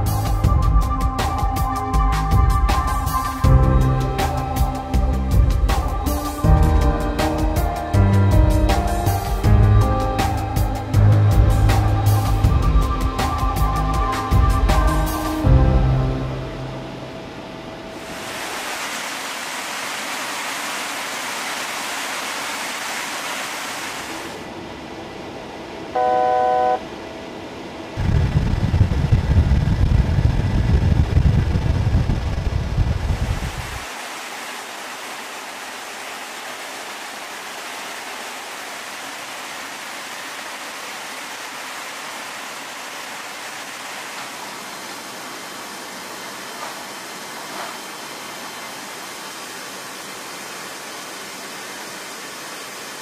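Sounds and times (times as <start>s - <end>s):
jet aircraft rushing airflow: 16.8s - 25.9s, 26.9s - 34.7s
brief tone: 25.9s - 26.9s
heavy low rumble: 28.0s - 33.8s.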